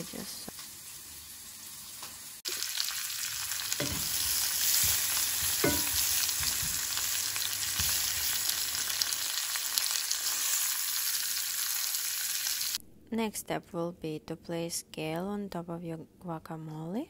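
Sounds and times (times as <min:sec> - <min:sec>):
food sizzling in frying pan: 0:00.0 - 0:12.8
wooden spatula knocking pan: 0:03.8 - 0:07.0.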